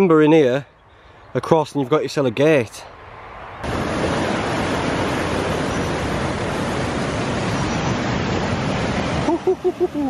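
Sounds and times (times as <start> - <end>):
water roaring over rock: 3.6 - 10.0.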